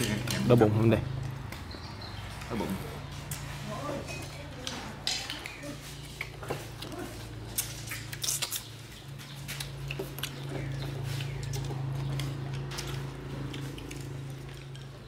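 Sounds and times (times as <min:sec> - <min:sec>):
chopsticks clicking on bowls: 0:04.1 - 0:08.7.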